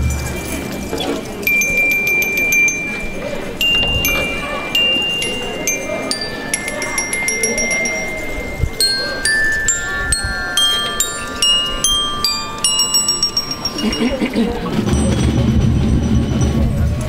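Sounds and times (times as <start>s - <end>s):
tuned metal chimes melody: 0.0s - 17.0s.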